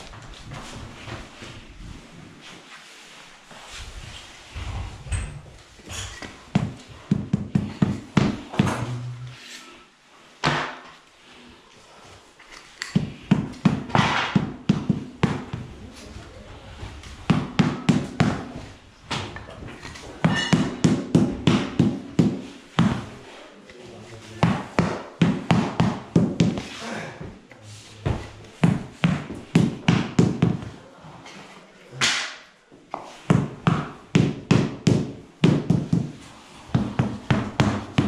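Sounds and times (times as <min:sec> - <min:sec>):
rubber mallet tapping wood planks: 0:06.5 - 0:09.0, 0:12.8 - 0:15.7, 0:17.3 - 0:18.7, 0:20.3 - 0:23.1, 0:24.4 - 0:26.7, 0:28.6 - 0:30.7, 0:33.3 - 0:38.0.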